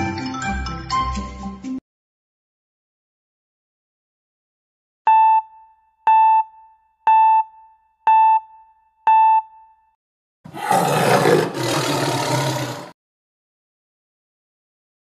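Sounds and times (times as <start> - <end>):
big cat roar: 10.5 - 13.0.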